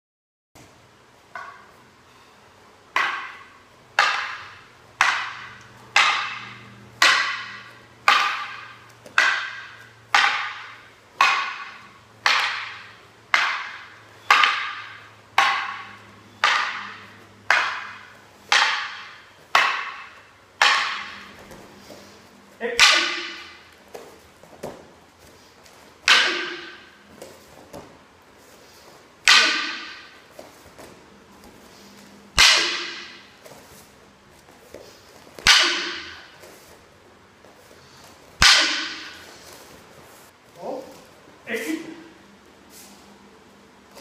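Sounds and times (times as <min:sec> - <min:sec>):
sharp wooden clacks: 0:03.0 - 0:22.0.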